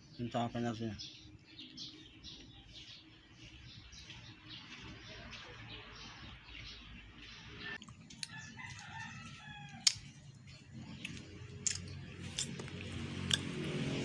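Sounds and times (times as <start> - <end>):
rooster crowing: 8.2 - 10.0
sharp clicks and knocks: 11.0 - 13.5.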